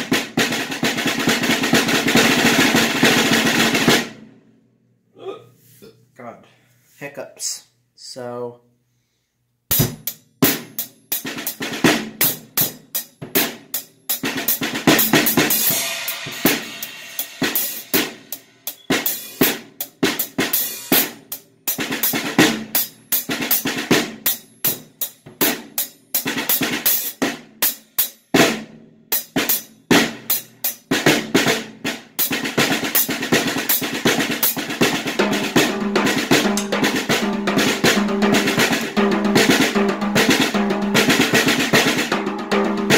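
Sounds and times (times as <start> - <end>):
bass drum: 9.7 - 10.7, 34.2 - 42.9
cymbals: 15.0 - 19.6, 20.4 - 21.1
snare drum strokes: 33.8 - 42.9.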